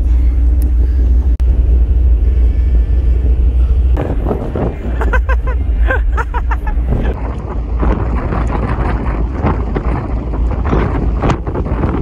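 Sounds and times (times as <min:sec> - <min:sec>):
ferry engines droning: 0:00.0 - 0:12.0.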